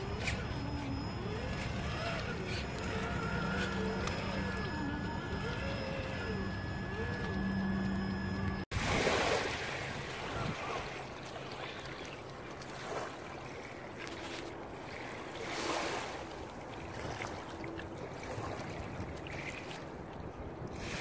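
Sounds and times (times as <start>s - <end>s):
small waves on stony shore: 8.7s - 21.0s.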